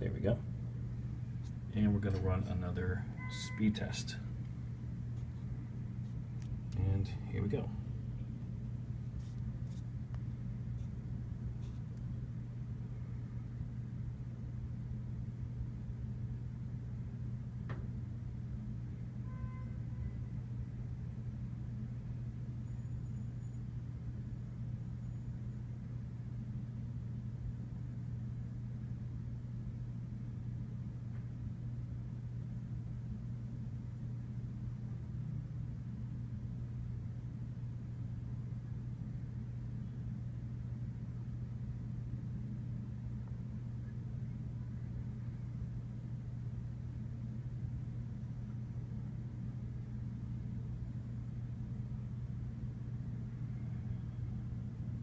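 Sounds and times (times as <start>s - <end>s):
ventilation unit humming: 0.0s - 55.0s.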